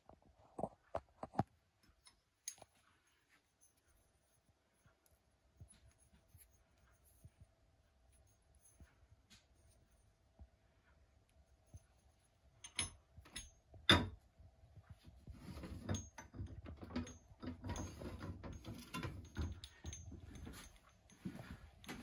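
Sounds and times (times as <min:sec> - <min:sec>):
metal clattering and scraping: 0:15.2 - 0:22.0.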